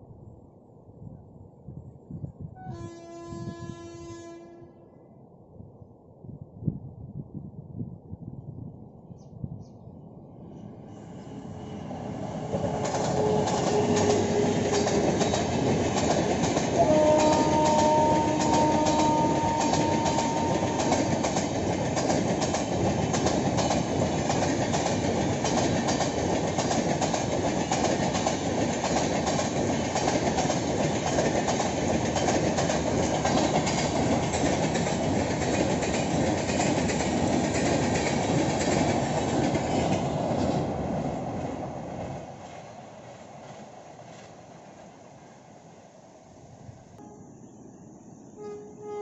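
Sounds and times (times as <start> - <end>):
train horn: 2.5 - 5.1, 12.5 - 15.2, 16.7 - 21.4, 48.4 - 49.0
train rushing past: 10.3 - 49.0.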